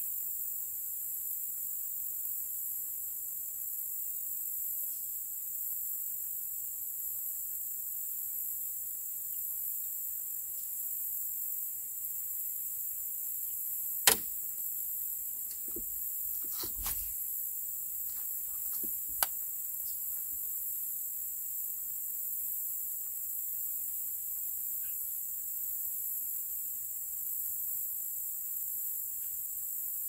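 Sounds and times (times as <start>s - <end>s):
high-pitched insect chorus: 0.0s - 30.0s
sharp clicks and knocks: 14.1s - 14.5s, 15.4s - 17.1s, 18.1s - 19.4s.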